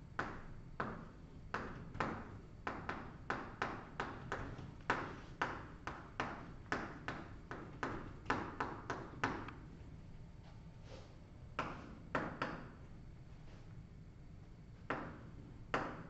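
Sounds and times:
chalk tapping on a chalkboard: 0:00.2 - 0:09.5, 0:11.6 - 0:12.8.

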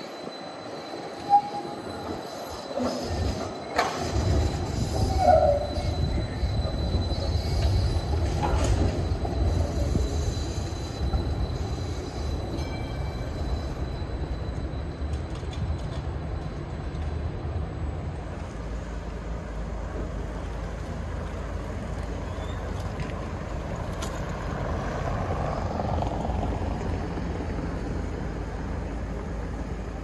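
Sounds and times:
brief squeals: 0:00.0 - 0:16.6.

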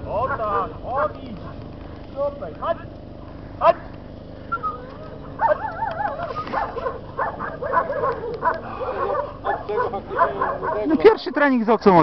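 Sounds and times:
puppy whining and yipping: 0:04.5 - 0:10.9.

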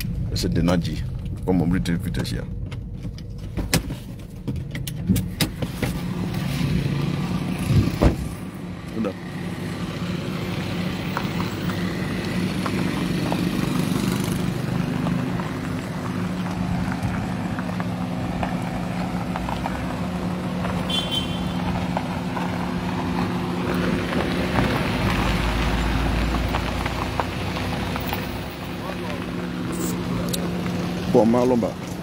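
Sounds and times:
deep rumble: 0:00.0 - 0:08.6
car engine hum: 0:00.0 - 0:32.0
road and tyre noise: 0:00.0 - 0:32.0.

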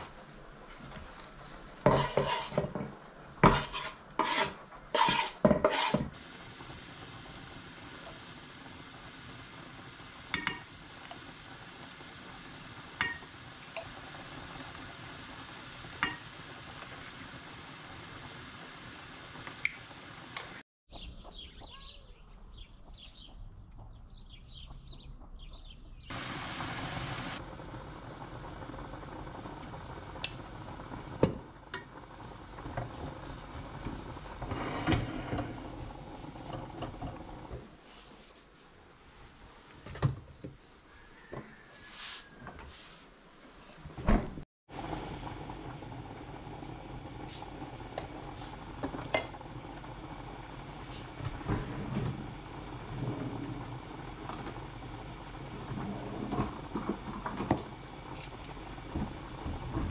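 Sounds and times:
onion and tomato sizzling: 0:00.0 - 0:20.6, 0:26.1 - 0:37.8, 0:44.7 - 0:59.9
kitchen clatter: 0:01.8 - 0:06.1, 0:10.3 - 0:10.7, 0:55.6 - 0:59.9.

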